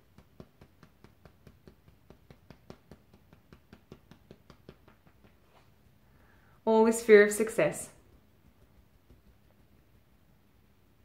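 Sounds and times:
fingertips tapping on ribcage: 0.0 - 5.9, 8.0 - 10.2.

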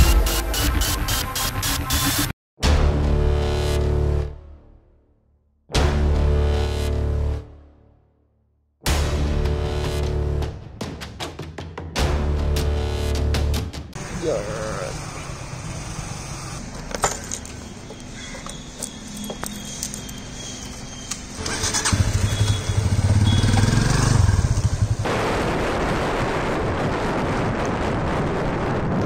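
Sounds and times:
wind and road noise: 14.0 - 29.0
motorcycle engine revving: 21.3 - 25.1.

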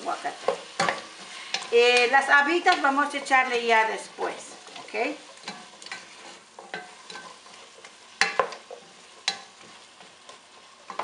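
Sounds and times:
food sizzling in oil: 0.0 - 11.0
wooden spoon scraping pot: 4.3 - 11.0.

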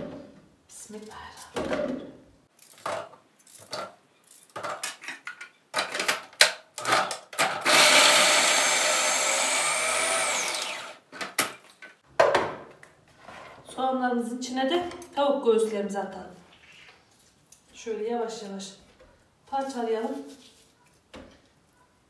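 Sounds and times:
food processor motor whine: 7.6 - 11.0.

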